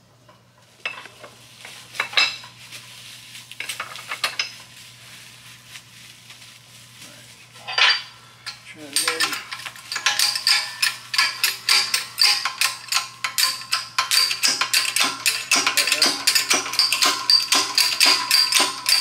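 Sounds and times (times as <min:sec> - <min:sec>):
steel parts clinking and scraping: 0:00.8 - 0:02.6, 0:03.6 - 0:04.7, 0:07.6 - 0:19.0
hydraulic press clicking: 0:09.0 - 0:19.0.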